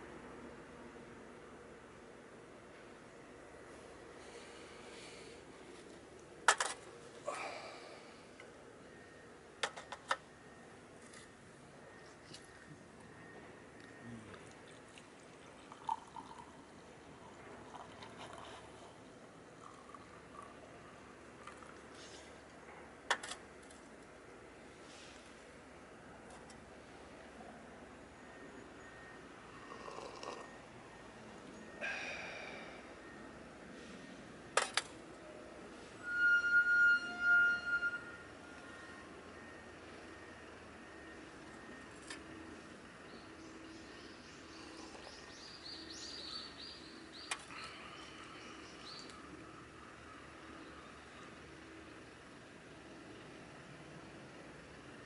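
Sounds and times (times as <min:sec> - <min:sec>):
faint liquid trickle: 0:14.3 - 0:22.2.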